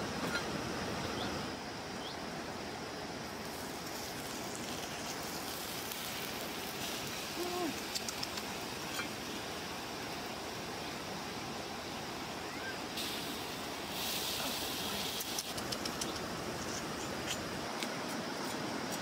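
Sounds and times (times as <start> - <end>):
outdoor background hiss: 0.0 - 19.0
wood fire crackling: 3.3 - 10.4.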